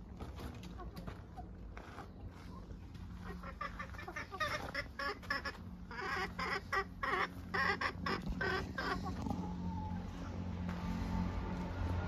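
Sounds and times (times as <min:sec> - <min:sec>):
hens clucking and squawking: 0:02.4 - 0:10.4
low hum: 0:05.5 - 0:12.0.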